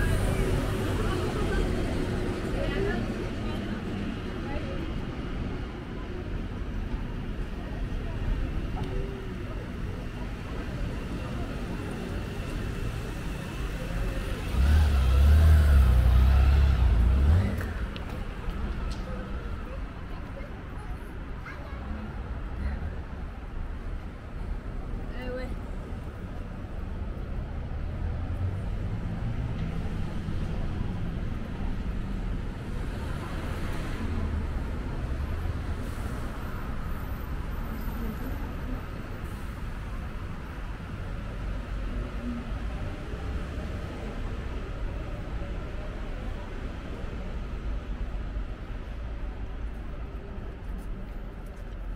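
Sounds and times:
street traffic: 0:00.0 - 0:51.9
vehicle engine rumbling close by: 0:12.8 - 0:18.3.

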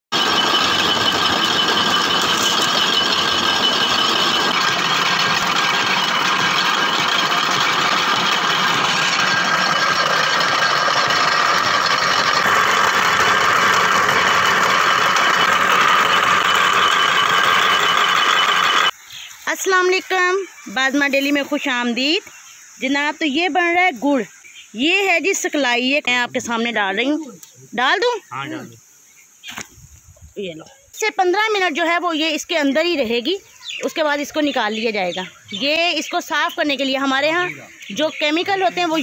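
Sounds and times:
cane crusher mechanical drone: 0:00.2 - 0:18.9.

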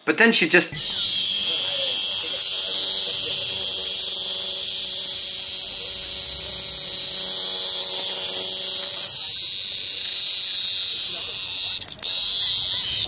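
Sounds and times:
cicada buzzing: 0:00.7 - 0:13.0.

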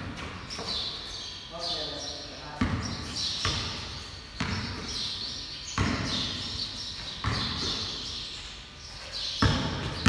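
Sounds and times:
basketball bouncing on concrete: 0:02.6 - 0:05.0, 0:05.7 - 0:08.0, 0:09.4 - 0:10.0.

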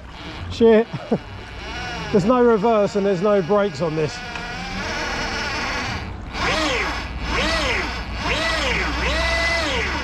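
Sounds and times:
electric motor whine: 0:00.0 - 0:10.0.

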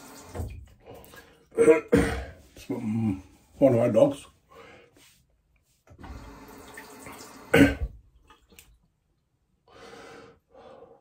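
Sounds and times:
man clearing throat and coughing: 0:01.6 - 0:02.5, 0:07.5 - 0:08.0
soft breathing: 0:04.4 - 0:06.6, 0:09.7 - 0:11.0.

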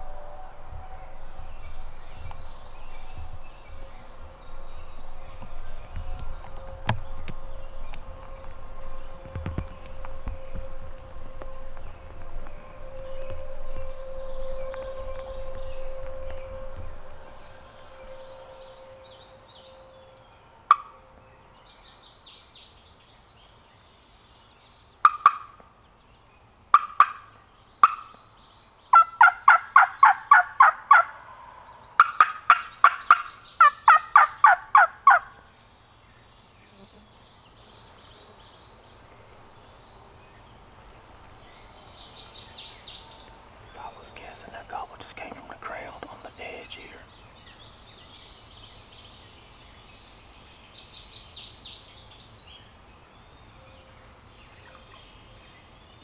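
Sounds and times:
faint songbird chirping: 0:00.0 - 0:56.0
turkey yelping: 0:28.9 - 0:31.2, 0:32.0 - 0:35.3.

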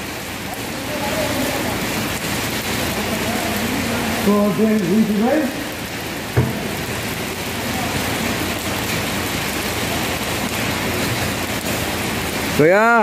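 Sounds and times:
rain on wet ground: 0:00.0 - 0:13.0
brief knock: 0:06.4 - 0:06.8.

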